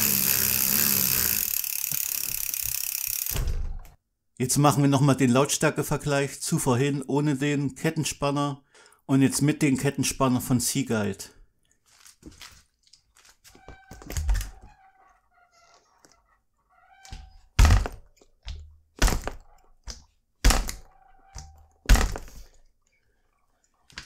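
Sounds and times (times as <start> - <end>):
bike thudding on ground: 3.2 - 4.0, 17.2 - 19.6, 20.4 - 20.9, 21.5 - 22.5.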